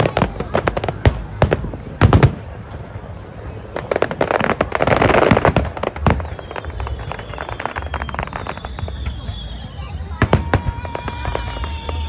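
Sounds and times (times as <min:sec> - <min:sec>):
fireworks bangs and crackling: 0:00.0 - 0:12.0
faint high whistle: 0:06.2 - 0:12.0.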